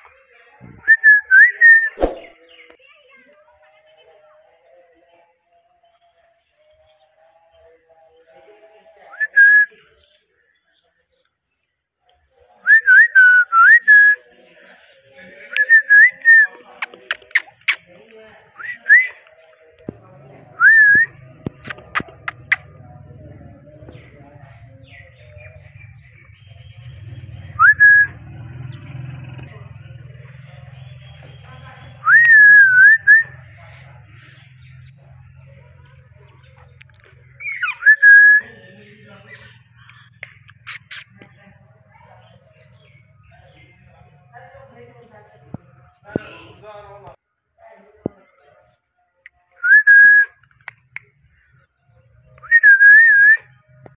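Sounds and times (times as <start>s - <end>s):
short sharp chirps: 1.8s - 2.4s, 40.0s - 41.2s
parakeet chirps: 37.4s - 37.8s, 39.3s - 41.2s
parakeet whistling: 37.4s - 38.4s.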